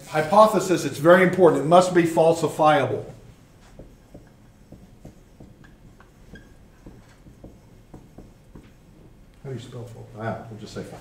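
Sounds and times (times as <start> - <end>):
marker writing on whiteboard: 2.5 - 9.4
marker squeak: 5.1 - 8.4.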